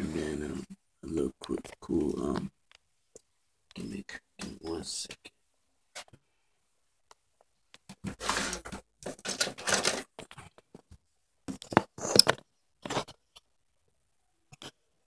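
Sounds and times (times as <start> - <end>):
plastic toy parts rustling and clicking: 7.9 - 13.5.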